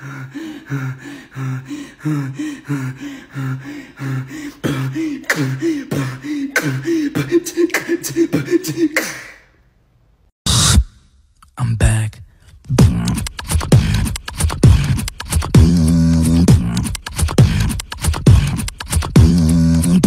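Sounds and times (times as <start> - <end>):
person beatboxing: 4.6 - 9.4, 10.5 - 10.9, 12.7 - 20.0
sharp mouth clicks: 13.1 - 15.6, 16.8 - 19.2.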